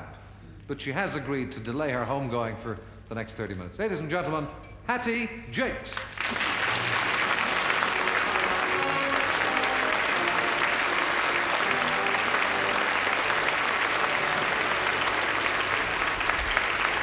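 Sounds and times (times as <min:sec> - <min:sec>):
audience applauding: 0:06.0 - 0:17.0
music playing melody: 0:07.5 - 0:16.2.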